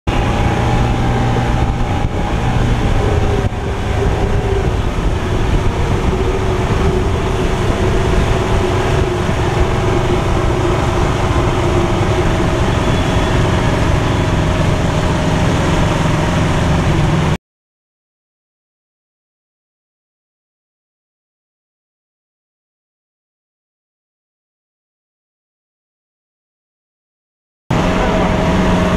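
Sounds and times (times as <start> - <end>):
motorboat engine running: 0.1 - 17.4, 27.7 - 28.9
water rushing along hull: 0.1 - 17.4, 27.7 - 28.9
wind noise: 0.1 - 17.4, 27.7 - 28.9.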